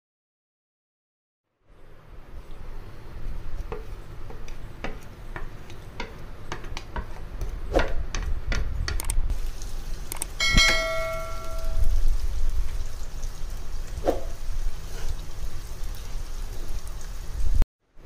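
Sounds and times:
onions crackling in oil: 9.3 - 17.6
sharp ringing clink: 10.4 - 11.9.

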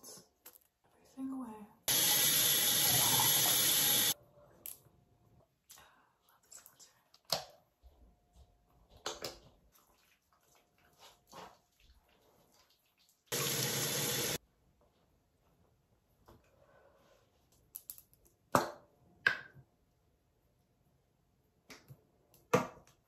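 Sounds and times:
sink tap running: 1.9 - 4.2, 13.3 - 14.4.

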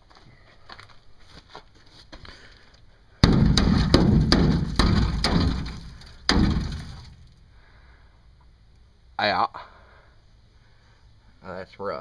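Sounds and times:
hammer beating sheet metal: 3.2 - 7.2.

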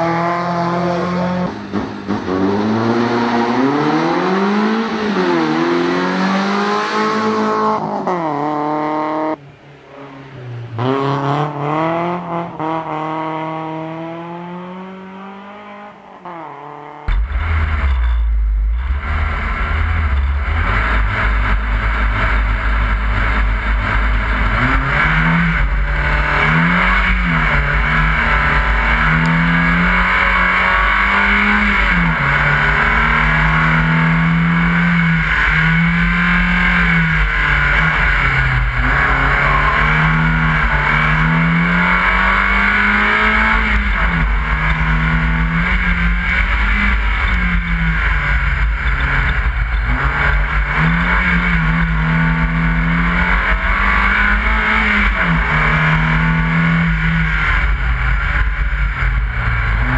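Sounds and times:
rally car engine driven hard: 0.0 - 59.9
wind and road noise: 0.0 - 59.9.

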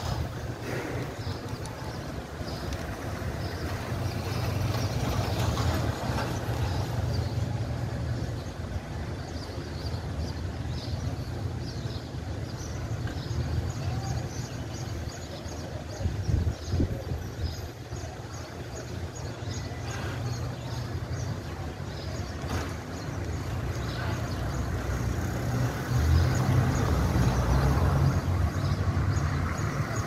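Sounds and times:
distant traffic rumble: 0.0 - 30.0
wind on microphone: 16.0 - 17.6.

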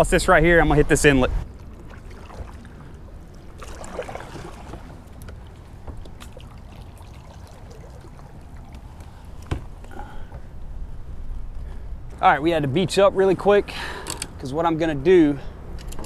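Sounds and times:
low steady rumble: 0.0 - 16.0
water splashing around a kayak: 0.6 - 10.7.

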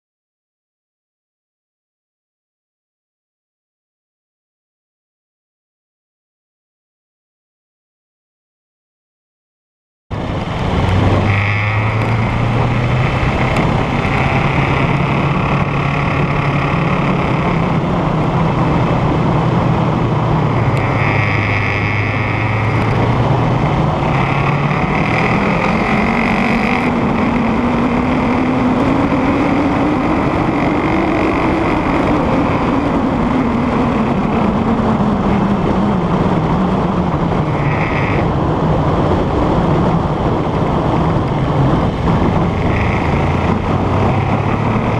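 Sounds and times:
motorcycle engine running: 10.1 - 44.9
wind rush on microphone: 10.1 - 44.9.

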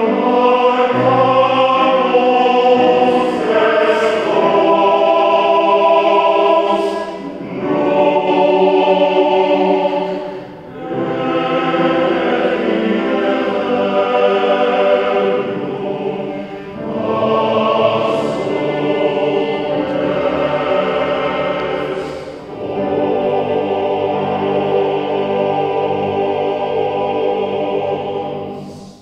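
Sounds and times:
choir singing sustained chords: 0.0 - 29.0.

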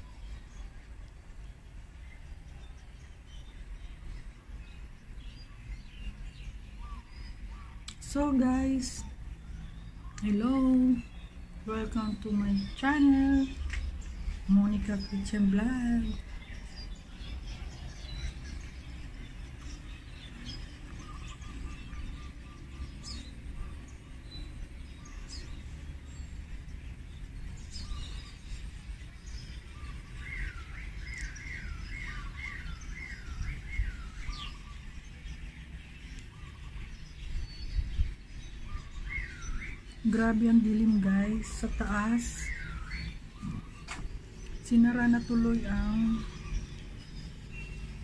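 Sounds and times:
birds chirping and calling: 0.0 - 48.0
steady low rumble: 0.0 - 48.0
bird trill: 29.2 - 48.0.

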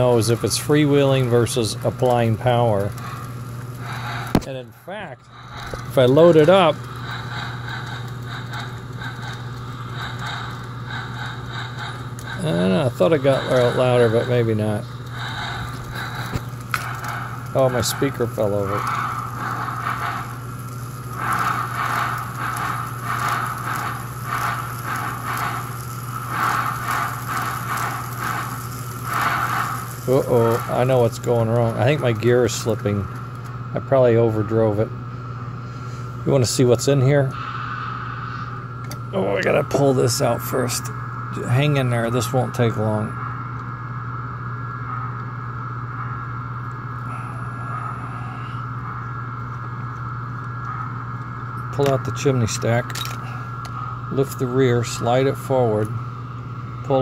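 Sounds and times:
electronic steam chuffs: 0.0 - 57.0
steady low hum: 0.0 - 57.0.

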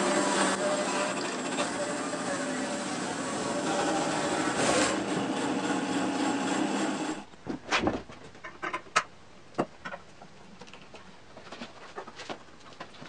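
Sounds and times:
bandsaw cutting log: 0.0 - 7.3.

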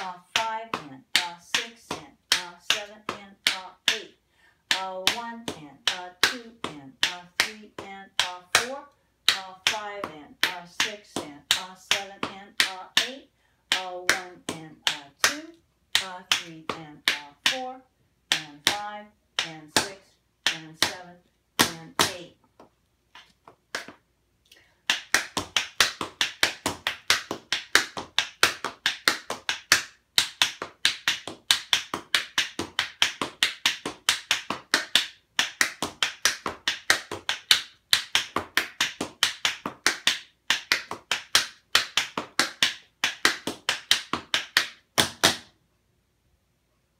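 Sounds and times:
tap shoes on tile floor: 4.7 - 17.7, 18.3 - 24.0, 24.9 - 45.6.

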